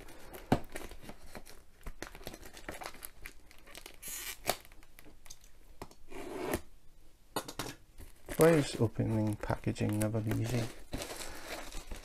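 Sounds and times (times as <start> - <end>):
plastic wrap crinkling: 0.0 - 5.5, 8.0 - 12.0
plastic wrap ripping: 0.6 - 5.0, 8.2 - 12.0.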